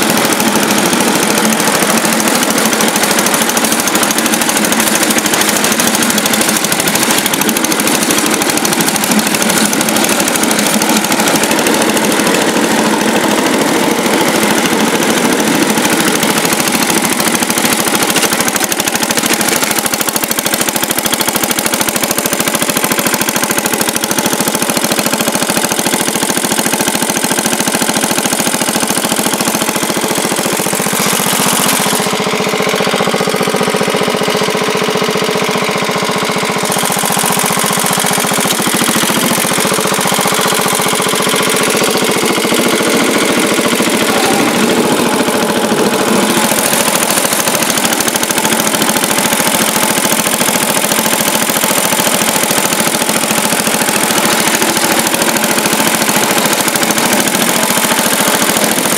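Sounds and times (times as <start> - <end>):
tractor engine running: 0.0 - 58.9.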